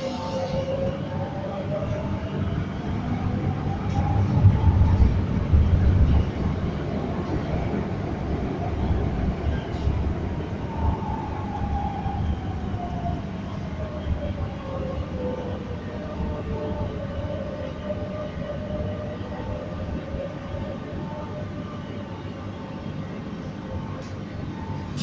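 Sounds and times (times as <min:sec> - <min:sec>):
train carriage rumble: 0:00.0 - 0:25.0.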